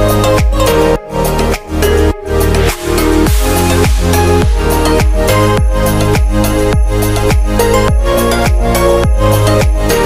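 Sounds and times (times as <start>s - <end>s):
upbeat background music: 0.0s - 10.0s
kick drum beating: 3.3s - 9.8s.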